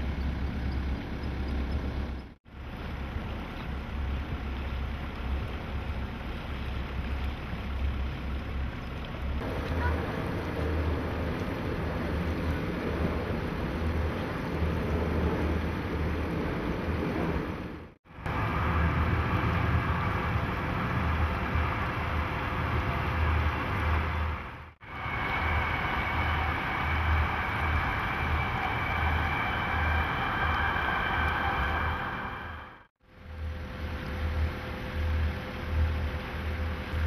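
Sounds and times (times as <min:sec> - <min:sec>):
faint steady whine: 0:00.0 - 0:37.0
water noise: 0:00.0 - 0:37.0.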